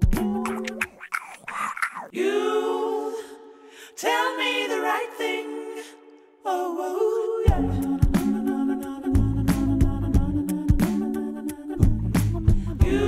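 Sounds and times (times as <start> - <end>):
long held vocal notes: 0.2 - 4.2.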